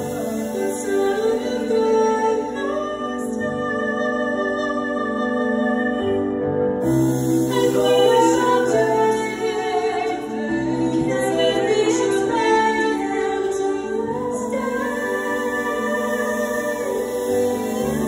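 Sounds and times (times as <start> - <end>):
soft instrumental backing: 0.0 - 18.0
woman singing into a microphone: 0.0 - 18.0.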